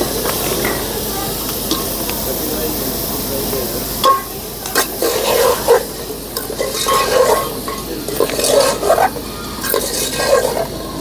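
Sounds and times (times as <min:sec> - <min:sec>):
light sizzle: 0:00.0 - 0:11.0
spoon scraping metal pot: 0:04.8 - 0:10.7.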